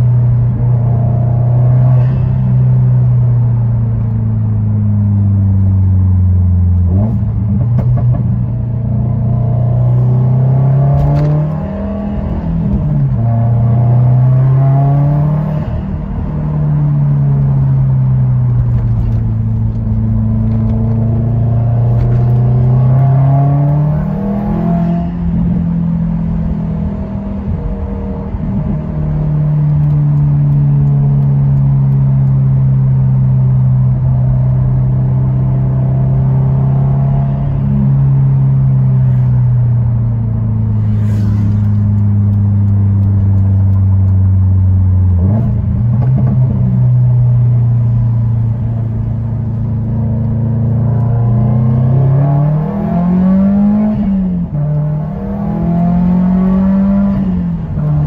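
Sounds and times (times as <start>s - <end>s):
car engine accelerating through gears: 0.0s - 58.0s.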